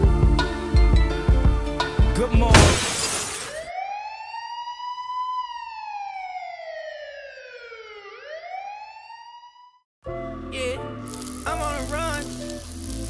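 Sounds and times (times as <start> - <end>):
siren wailing: 3.4 - 9.9.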